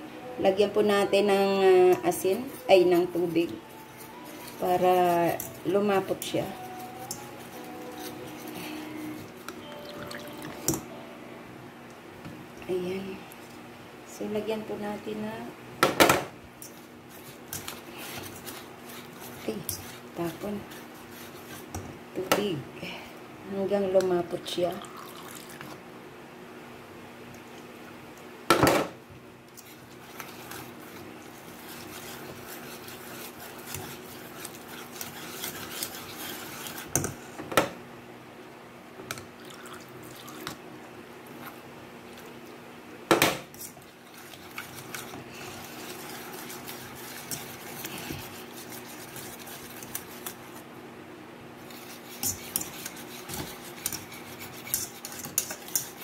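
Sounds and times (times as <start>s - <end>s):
whisk stirring batter in bowl: 0.9s - 9.6s, 16.6s - 22.3s, 29.5s - 37.4s, 43.5s - 50.7s, 51.6s - 56.0s
whisk tapping strokes: 1.3s - 10.9s, 16.6s - 21.9s, 29.6s - 37.3s, 43.5s - 50.7s, 51.6s - 56.0s
whisk knocking on bowl: 51.8s - 56.0s.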